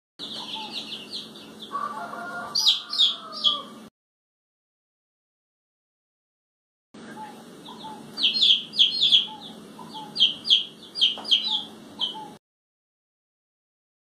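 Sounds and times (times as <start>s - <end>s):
chicks peeping: 0.2s - 3.9s, 7.0s - 12.4s.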